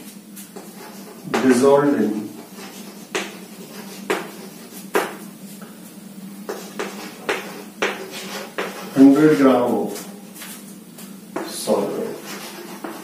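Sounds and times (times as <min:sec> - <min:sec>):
steady low hum: 0:00.0 - 0:13.0
chalk tapping and scraping on board: 0:00.4 - 0:01.6, 0:02.3 - 0:05.7, 0:06.4 - 0:09.2, 0:11.4 - 0:13.0.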